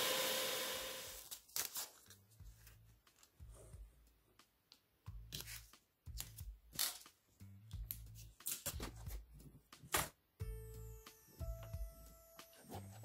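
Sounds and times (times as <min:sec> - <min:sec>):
belt sander running down: 0:00.0 - 0:01.2
masking tape ripping off roll: 0:01.1 - 0:02.2, 0:06.2 - 0:07.1.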